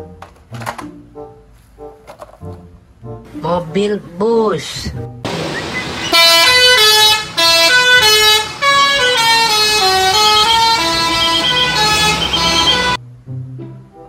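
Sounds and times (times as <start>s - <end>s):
musical vehicle horn tune: 5.6s - 13.0s.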